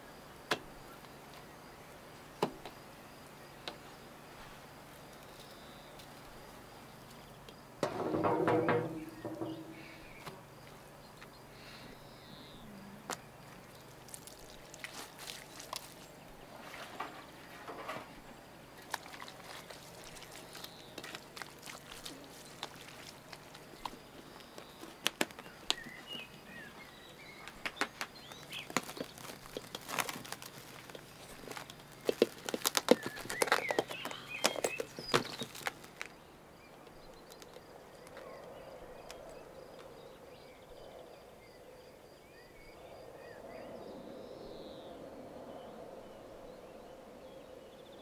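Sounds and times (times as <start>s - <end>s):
birds chirping: 0.0s - 48.0s
cling film crackling: 27.5s - 36.1s.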